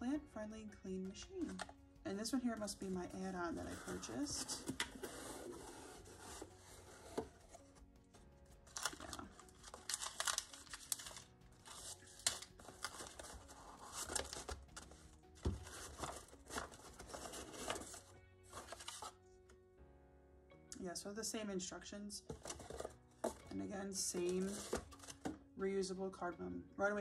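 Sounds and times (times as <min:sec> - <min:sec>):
quiet background music: 0:00.0 - 0:27.0
cardboard rustling and crinkling: 0:03.4 - 0:07.7, 0:08.7 - 0:19.2, 0:22.3 - 0:25.4.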